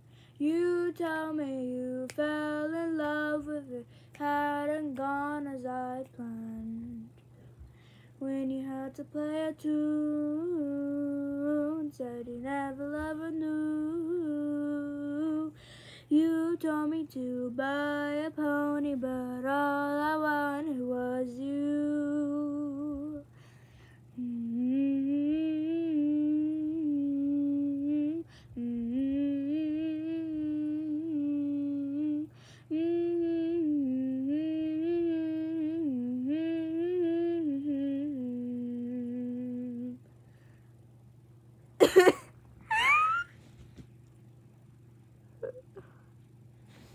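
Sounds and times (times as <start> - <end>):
person humming: 45.4 - 46.1.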